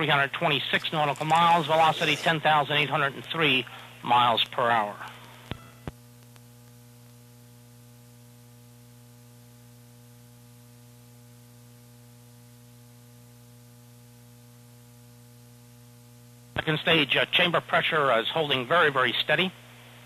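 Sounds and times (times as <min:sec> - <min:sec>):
electrical mains hum: 0:00.0 - 0:20.0
faint hiss: 0:00.5 - 0:05.8.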